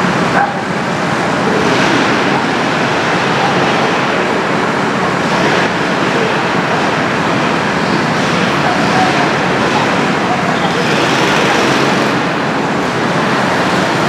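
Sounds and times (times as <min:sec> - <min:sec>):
go-kart engines droning: 0:00.0 - 0:14.0.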